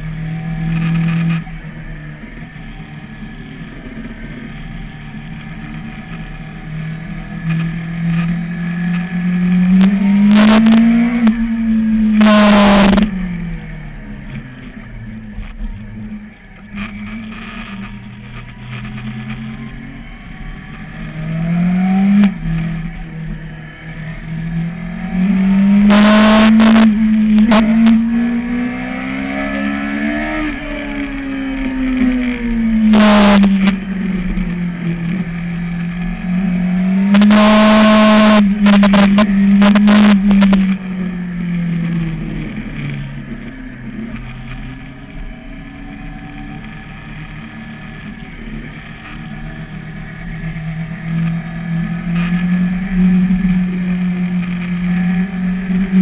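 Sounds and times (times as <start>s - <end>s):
motorcycle engine revving: 0.0s - 56.0s
loud harsh noise bursts: 12.1s - 13.1s, 25.7s - 28.0s, 32.9s - 33.7s.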